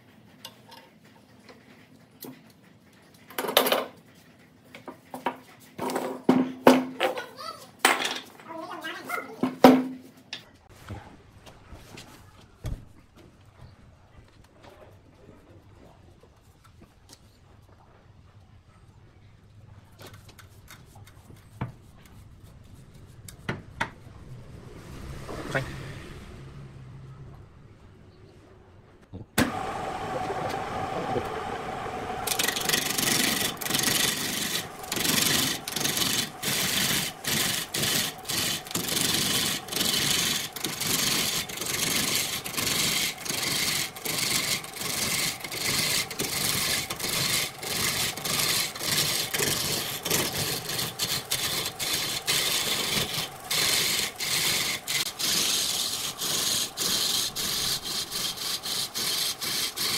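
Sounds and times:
lathe motor humming: 0:29.4 - 0:59.9
lathe starting clack: 0:29.4 - 0:59.9
turning tool scraping wood: 0:29.4 - 0:59.9.

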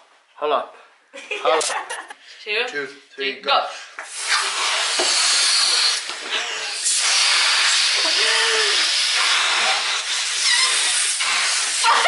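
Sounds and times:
people blowing into balloons: 0:04.1 - 0:12.0.

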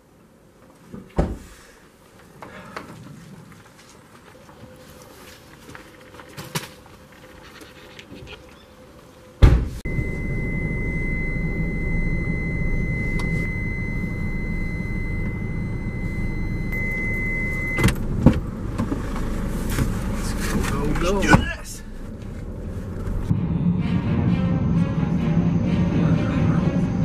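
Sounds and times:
van engine and road noise: 0:08.1 - 0:27.0
thin high tone: 0:09.9 - 0:17.8.

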